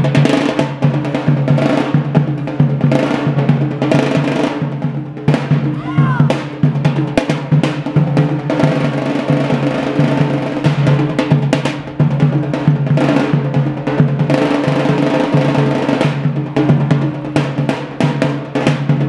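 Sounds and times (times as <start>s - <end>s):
deep bass drum beat: 5.1s - 8.5s.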